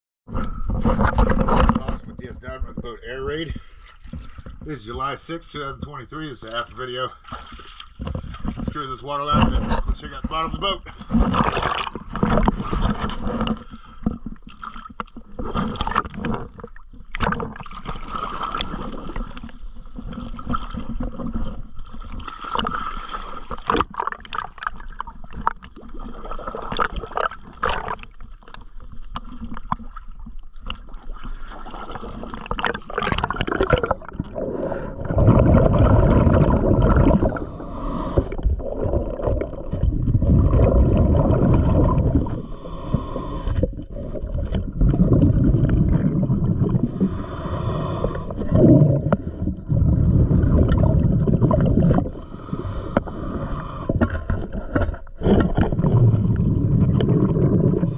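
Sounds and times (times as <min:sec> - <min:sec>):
muffled underwater rumbling: 0:00.3 - 0:57.9
water sloshing and gurgling: 0:00.3 - 0:57.9
small splashes: 0:06.6 - 0:08.9.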